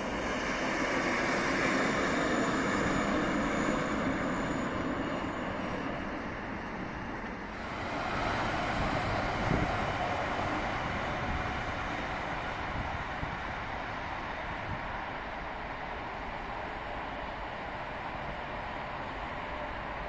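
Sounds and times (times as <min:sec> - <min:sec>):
electric train running on tracks: 0:00.0 - 0:20.0
track maintenance vehicle rumbling: 0:02.6 - 0:20.0.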